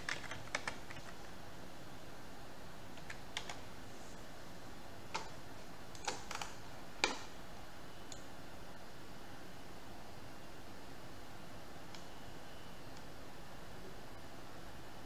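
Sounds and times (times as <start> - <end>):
computer mouse clicks: 5.1 - 7.3.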